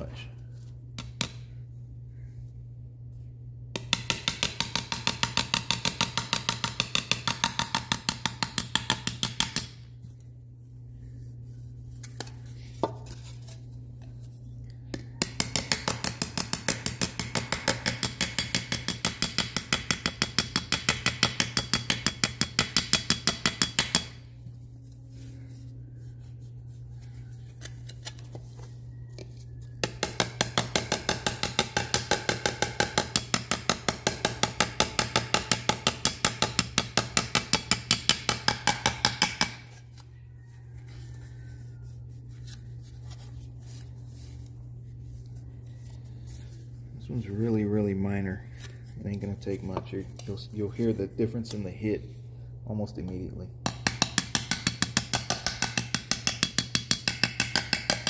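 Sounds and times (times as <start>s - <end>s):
hammer tapping on metal: 3.7s - 9.8s, 14.9s - 24.2s, 29.8s - 39.7s, 53.6s - 58.0s.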